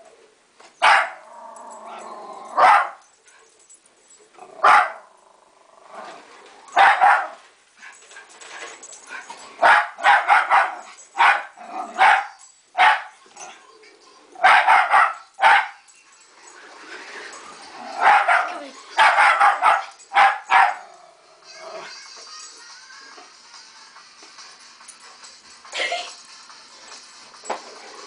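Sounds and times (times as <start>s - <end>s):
dog growling: 1.2s - 2.6s, 4.4s - 6.5s.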